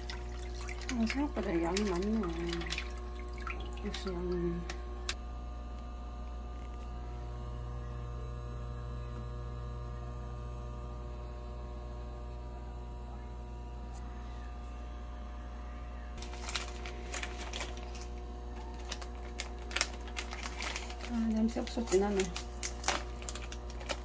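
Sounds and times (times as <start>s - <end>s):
plastic packaging crinkling: 0.0s - 4.8s, 16.2s - 24.0s
electrical hum: 0.0s - 24.0s.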